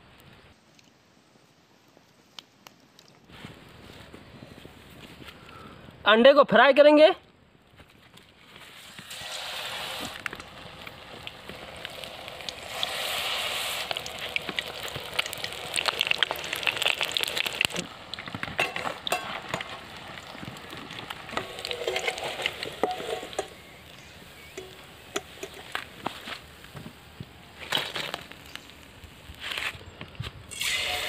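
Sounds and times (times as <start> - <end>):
deep-frying sizzle with crackles: 7.7 - 31.0.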